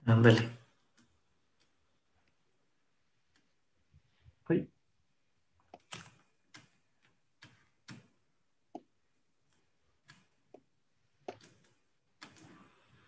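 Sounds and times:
faint computer clicking: 5.6 - 13.0.

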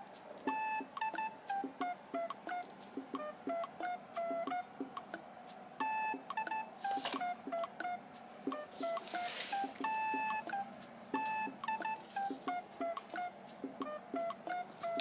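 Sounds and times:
plucked background music: 0.0 - 15.0.

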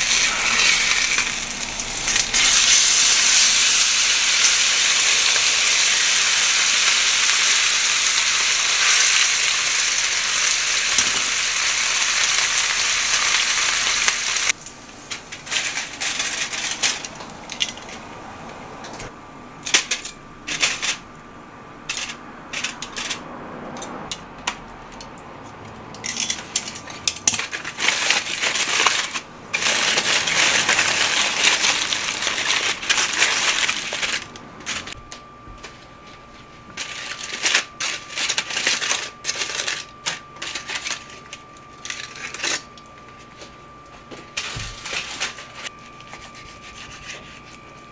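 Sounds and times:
steak sizzling in a frying pan: 0.0 - 14.5
aluminium foil crinkling: 0.0 - 18.0, 26.2 - 35.0, 36.8 - 43.4, 44.3 - 47.9.

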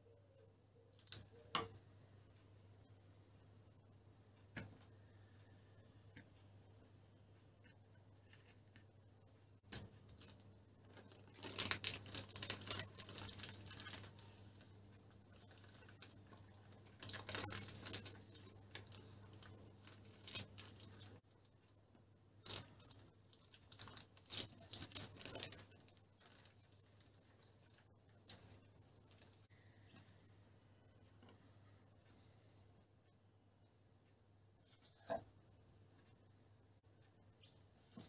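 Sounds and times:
plastic food wrap crinkling: 9.7 - 21.2, 22.4 - 29.5.

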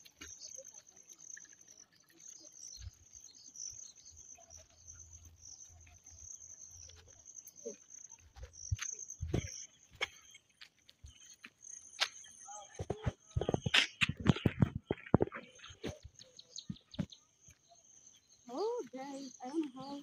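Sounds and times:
footsteps in sandals on dirt: 0.0 - 20.0
insects chirring: 0.0 - 20.0.

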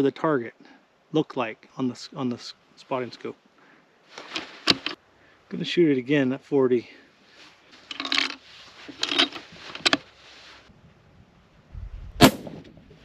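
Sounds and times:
rustling: 2.8 - 5.4, 6.9 - 10.8
rifle shot: 12.2 - 12.9.

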